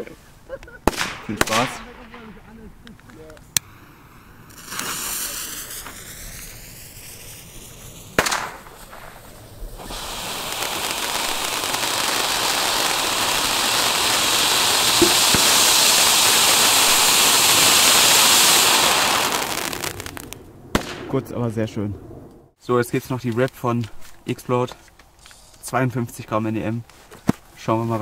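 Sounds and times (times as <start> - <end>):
sharp crack: 0.8 - 3.8, 4.4 - 21.5
firework fountain hissing: 3.6 - 20.4.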